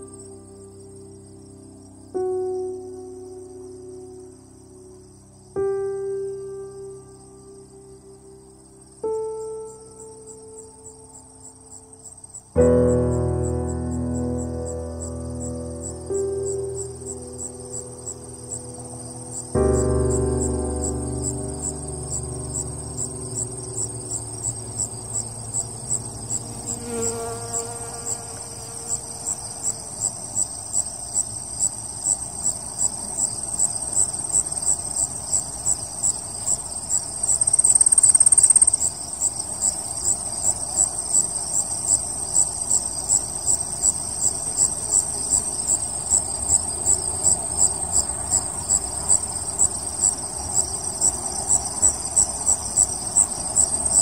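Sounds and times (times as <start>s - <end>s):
crickets chirping: 0.0s - 54.0s
loud high insect trill: 0.0s - 54.0s.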